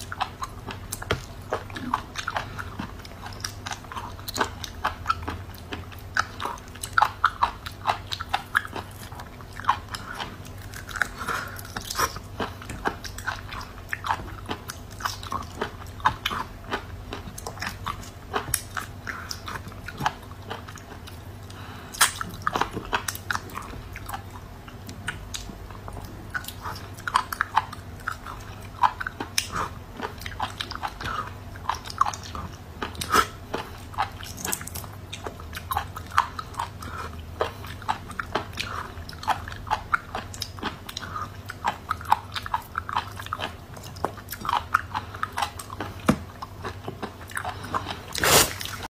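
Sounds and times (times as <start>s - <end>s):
mouth clicks and chewing: 0.0s - 48.9s
steady low hum: 0.0s - 48.9s.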